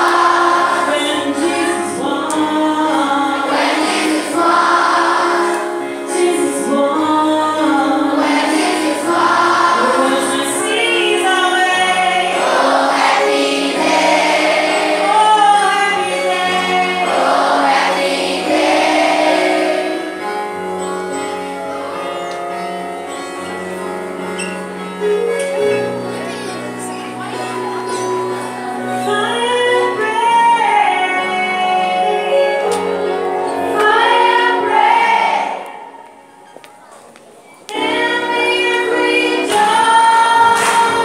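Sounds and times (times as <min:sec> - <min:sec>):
choir singing: 0:00.0 - 0:20.6, 0:30.6 - 0:36.0.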